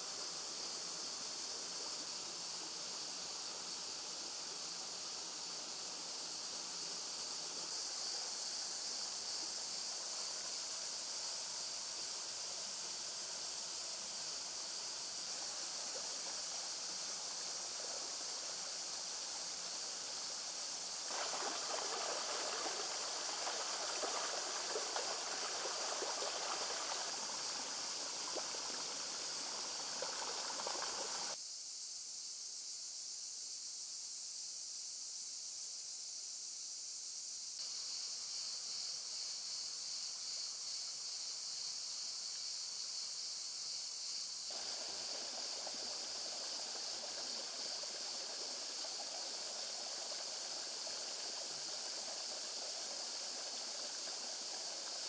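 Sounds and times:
stream running over rocks: 0:00.0 - 0:31.4, 0:44.5 - 0:55.0
insects buzzing: 0:00.0 - 0:55.0.

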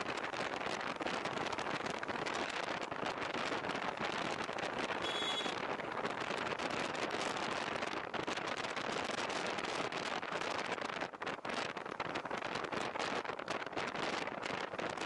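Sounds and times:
wind and tyre noise hiss: 0:00.0 - 0:15.0
brief high tone: 0:05.0 - 0:05.6.

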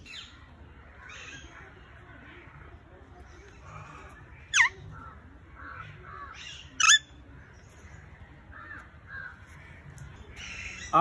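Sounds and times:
faint bird chatter: 0:00.0 - 0:11.0
parakeet screeching: 0:04.5 - 0:04.7, 0:06.8 - 0:07.0.

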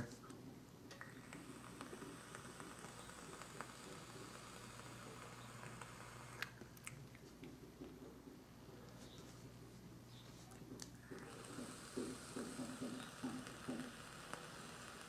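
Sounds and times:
e-cigarette coil crackling and sizzling: 0:00.9 - 0:07.0, 0:10.8 - 0:15.0.

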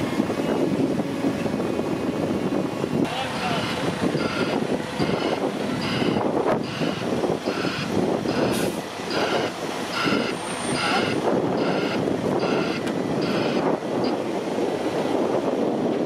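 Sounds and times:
diesel engines running: 0:00.0 - 0:16.0
backup alarm beeping: 0:04.2 - 0:08.5, 0:09.1 - 0:13.6.

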